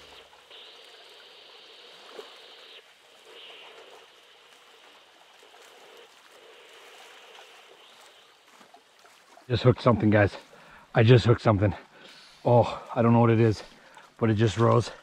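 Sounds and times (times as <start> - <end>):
flowing water rushing: 0.0 - 15.0.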